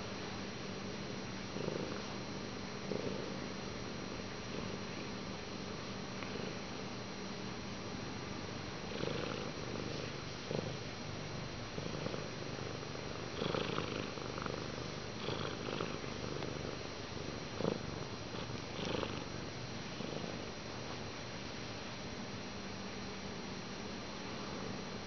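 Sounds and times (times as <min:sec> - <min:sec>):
cat purring: 0:00.0 - 0:05.5, 0:06.1 - 0:06.7, 0:08.8 - 0:20.9, 0:24.2 - 0:25.0.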